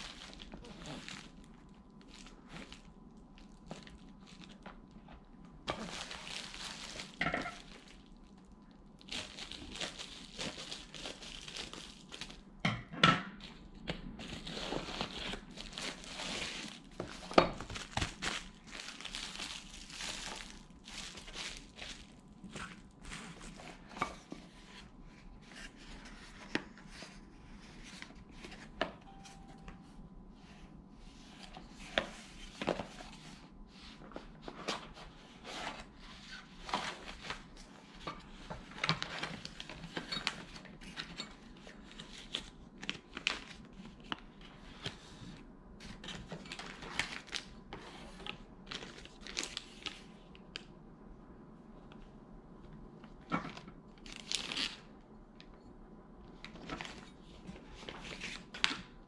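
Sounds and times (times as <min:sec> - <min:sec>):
plastic packaging rustling: 0:00.0 - 0:12.6, 0:13.4 - 0:24.9, 0:34.0 - 0:45.0, 0:45.8 - 0:50.1, 0:53.1 - 0:55.0, 0:56.4 - 0:59.0.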